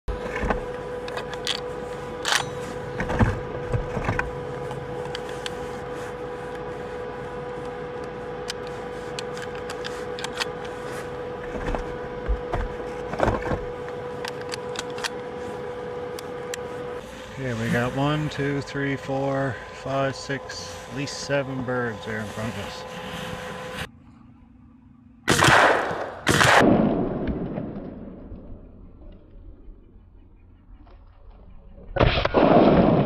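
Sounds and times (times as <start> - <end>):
snowmobile engine idling: 0.2 - 24.8.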